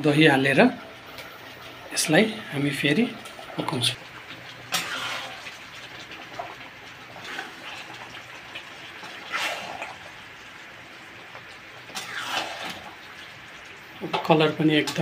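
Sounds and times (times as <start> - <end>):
curry hissing in wok: 4.6 - 15.0
metal spatula scraping wok: 4.7 - 5.4, 9.1 - 10.0, 11.9 - 12.8.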